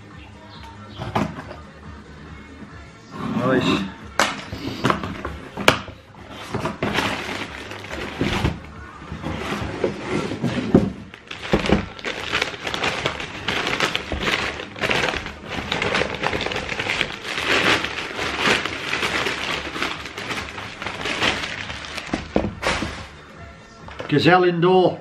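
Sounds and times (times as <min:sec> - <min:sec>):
paper wrapping crinkling: 0:06.6 - 0:08.6, 0:09.4 - 0:23.2.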